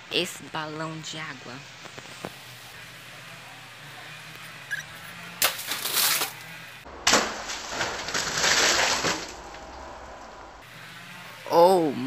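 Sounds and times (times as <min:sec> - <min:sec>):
water balloon bursting on wall: 0:07.0 - 0:09.4.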